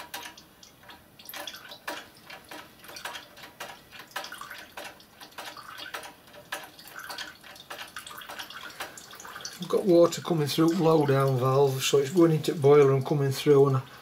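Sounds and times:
water splashing and gurgling: 4.0 - 12.8.

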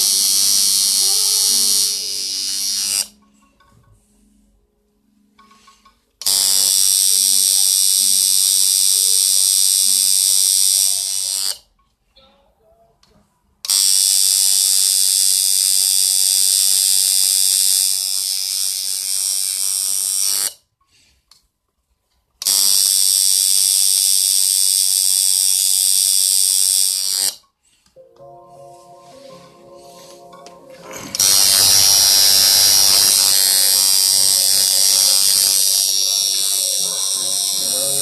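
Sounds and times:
tattoo machine buzzing: 0.0 - 3.2, 6.2 - 11.6, 13.7 - 20.6, 22.4 - 27.4, 31.2 - 38.0.

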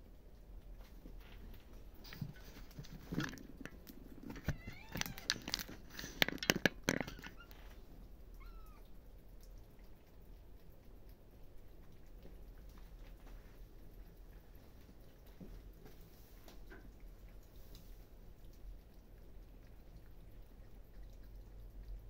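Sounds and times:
sharp clicks and knocks: 2.2 - 7.6
kittens meowing: 4.4 - 5.4, 8.3 - 8.9.

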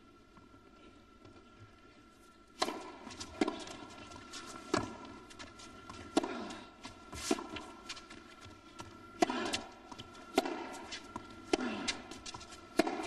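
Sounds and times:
tennis ball hits: 2.6 - 3.8, 9.1 - 13.0.

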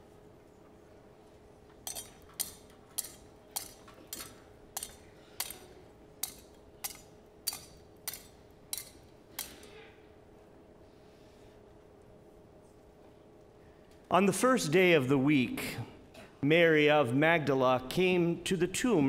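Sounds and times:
metal censer chains clinking: 1.8 - 9.6.

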